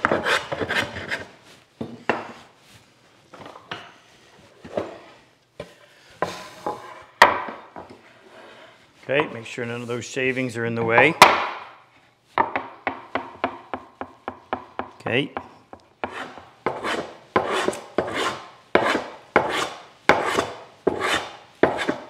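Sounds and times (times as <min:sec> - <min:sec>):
hand plane rasping cuts: 0:16.0 - 0:22.0.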